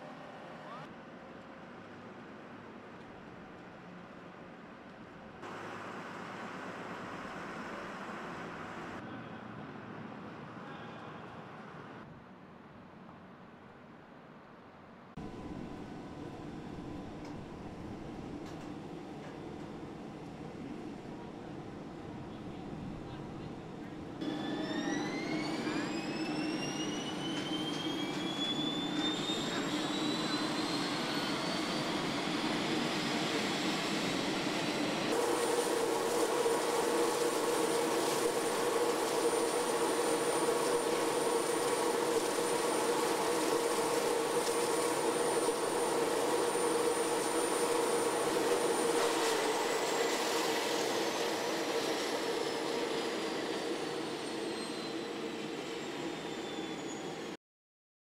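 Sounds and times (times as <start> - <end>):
gas turbine whine: 15.2 - 57.4.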